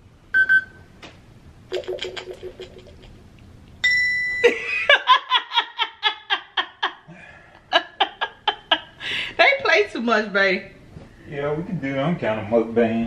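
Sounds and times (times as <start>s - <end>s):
woman laughing: 4.4s - 9.2s.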